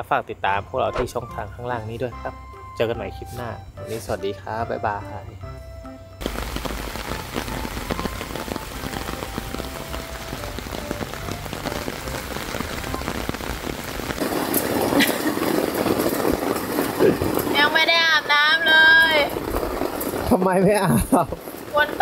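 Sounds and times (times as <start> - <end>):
heavy rain on a tent: 6.2 - 22.0.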